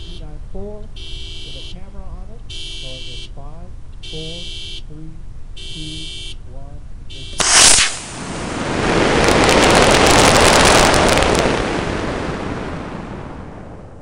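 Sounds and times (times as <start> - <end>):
rocket motor roaring and crackling: 7.3 - 14.0
air rushing past: 7.4 - 14.0.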